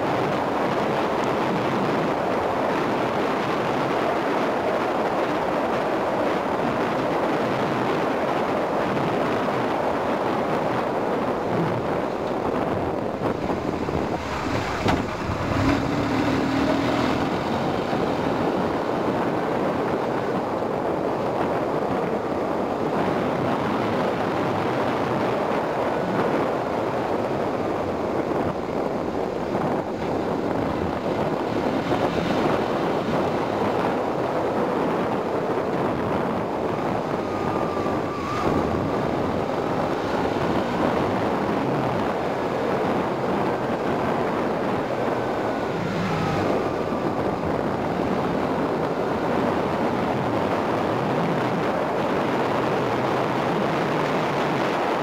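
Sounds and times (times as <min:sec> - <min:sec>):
road noise: 0:00.0 - 0:55.0
wind rushing over microphone: 0:00.0 - 0:55.0
motorcycle engine: 0:11.7 - 0:20.3.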